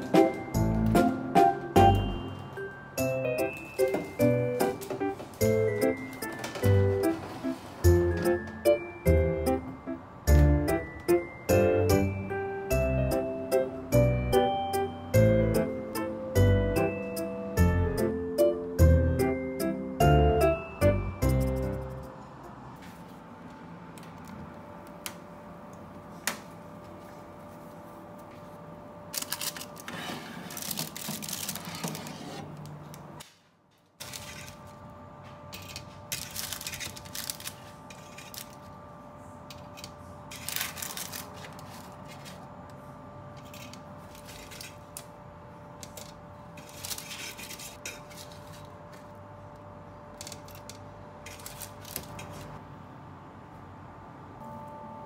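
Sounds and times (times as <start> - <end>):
steady electrical hum: 0.0 - 55.0.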